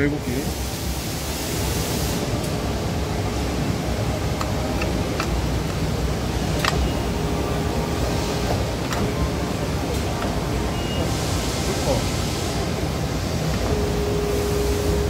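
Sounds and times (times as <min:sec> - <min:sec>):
hydraulic pump hum: 0:01.4 - 0:15.0.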